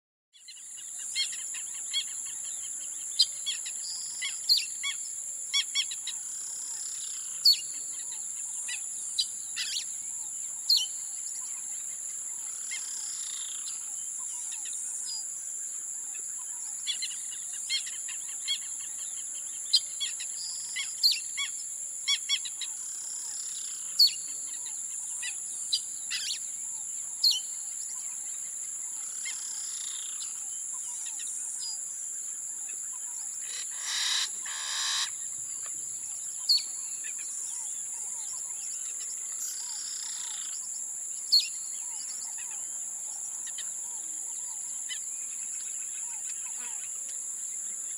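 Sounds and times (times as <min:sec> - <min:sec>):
bird chirps and calls: 0:06.8 - 0:11.7, 0:33.0 - 0:35.7, 0:36.4 - 0:40.6, 0:41.3 - 0:42.6
high-pitched insect drone: 0:33.2 - 0:47.6.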